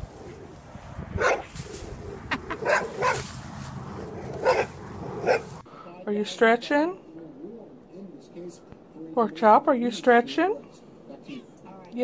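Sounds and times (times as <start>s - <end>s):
dog barking: 1.2s - 1.5s, 2.5s - 3.3s, 4.0s - 5.6s.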